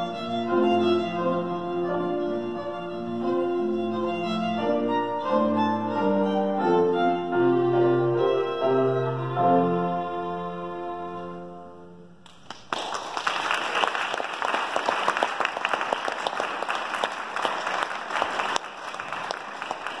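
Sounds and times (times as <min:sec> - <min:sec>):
violin and piano chord: 0:00.0 - 0:12.2
audience applause: 0:12.3 - 0:20.0.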